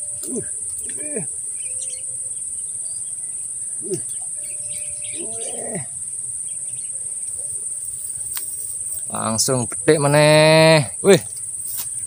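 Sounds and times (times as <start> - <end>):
insects droning: 0.0 - 12.0
calls falling in pitch: 3.8 - 6.0.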